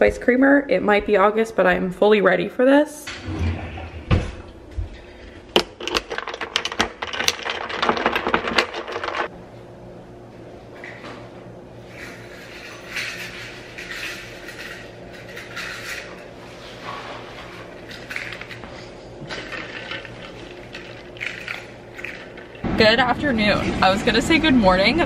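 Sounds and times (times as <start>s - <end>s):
cups and utensils clattering: 11.9s - 16.3s, 17.8s - 22.6s.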